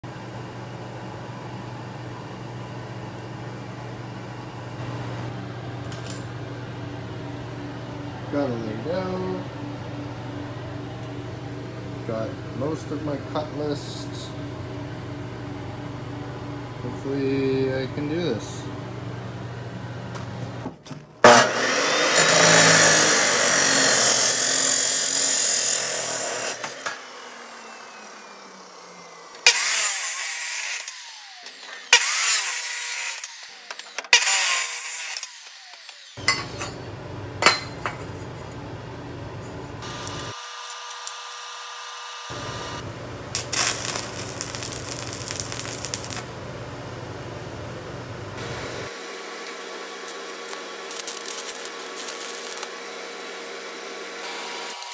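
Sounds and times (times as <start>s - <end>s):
crackling tack welds: 21.2s - 27.7s, 28.6s - 36.2s, 39.8s - 46.4s, 48.4s - 54.9s
saw motor spinning down: 21.2s - 36.2s, 39.8s - 42.8s, 48.4s - 54.9s
cut-off saw cutting steel: 21.2s - 36.8s, 48.4s - 54.9s.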